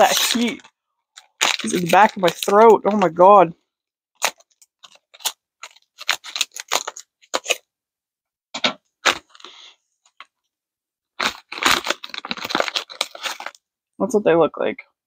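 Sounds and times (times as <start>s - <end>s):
plastic snack bag crinkling: 0.0s - 3.4s, 4.2s - 7.6s, 9.0s - 9.6s, 11.2s - 13.6s.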